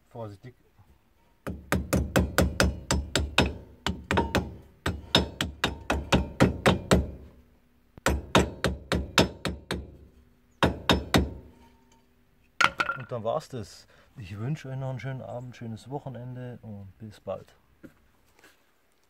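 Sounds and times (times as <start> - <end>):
hammer tapping on metal hub: 1.5 - 7.2, 10.6 - 11.5.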